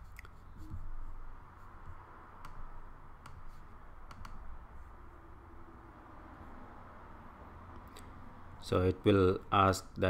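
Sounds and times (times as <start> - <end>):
low room hum: 0.0 - 10.0
computer mouse clicks: 2.4 - 4.6.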